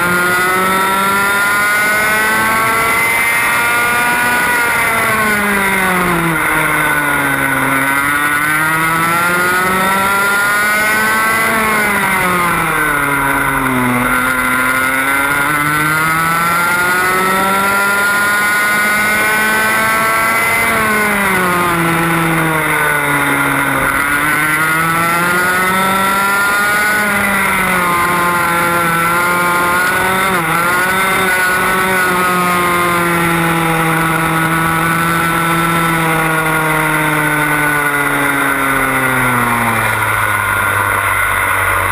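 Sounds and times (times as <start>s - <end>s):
kart engine revving: 0.0s - 41.9s.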